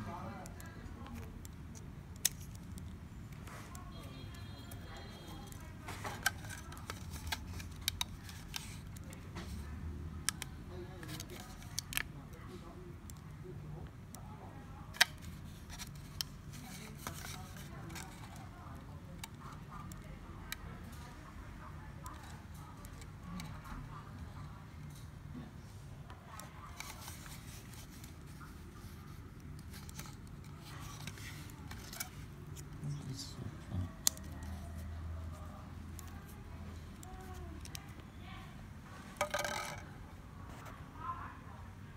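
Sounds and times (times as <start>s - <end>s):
plastic parts clicking and tapping: 0.3s - 9.5s, 10.2s - 12.1s, 14.9s - 20.6s, 26.7s - 32.7s, 39.2s - 39.9s.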